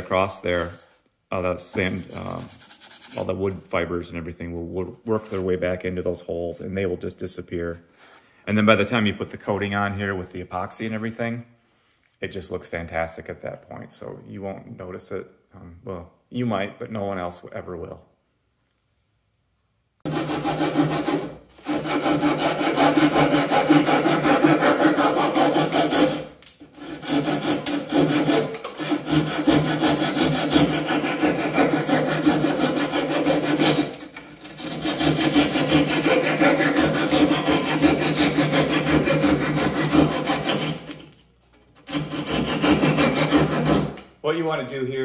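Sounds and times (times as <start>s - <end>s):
handsaw cutting wood: 1.8s - 3.4s, 20.1s - 41.1s, 41.8s - 44.0s.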